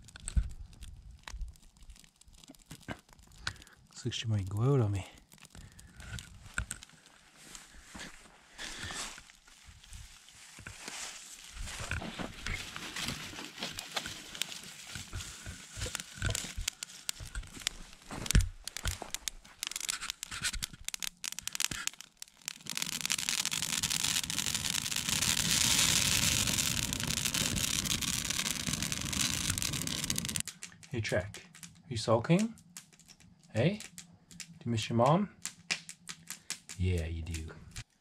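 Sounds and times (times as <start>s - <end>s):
kindling crackling and snapping: 0.0s - 38.0s
rush of flames: 11.4s - 34.9s.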